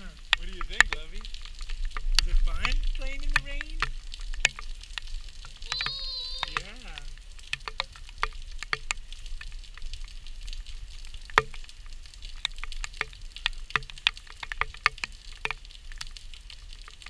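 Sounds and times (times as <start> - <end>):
rain falling: 0.0 - 17.0
raindrop taps: 0.0 - 17.0.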